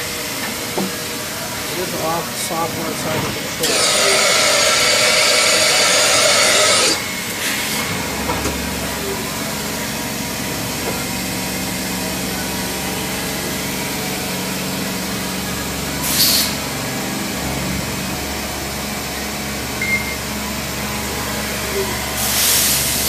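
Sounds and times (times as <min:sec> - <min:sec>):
low machine drone: 0:00.0 - 0:23.0
machine hum: 0:00.0 - 0:23.0
compressed air blast hissing: 0:03.6 - 0:07.8, 0:16.0 - 0:16.6, 0:22.2 - 0:23.0.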